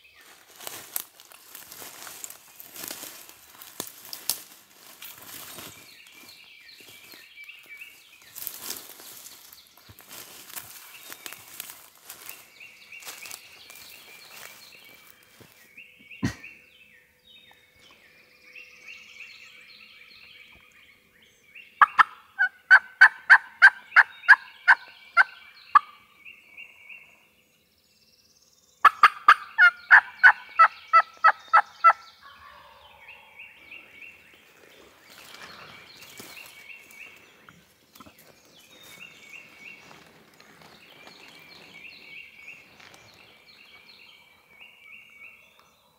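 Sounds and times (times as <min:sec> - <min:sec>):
turkey yelps: 0:21.8 - 0:24.4, 0:28.8 - 0:33.0.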